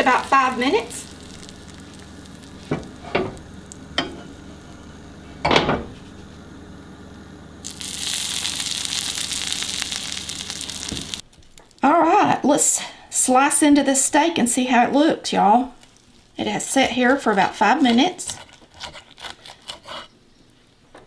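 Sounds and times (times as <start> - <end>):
fat popping: 0.0 - 4.9, 7.6 - 11.8
butter sizzling on steak: 0.0 - 5.2, 7.6 - 11.3.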